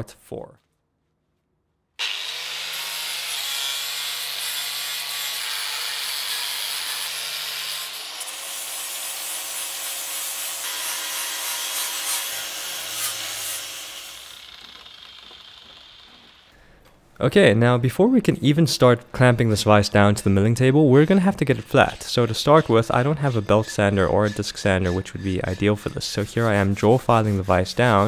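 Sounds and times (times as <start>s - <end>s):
angle grinder grinding metal: 2.0s - 16.6s, 20.8s - 28.0s.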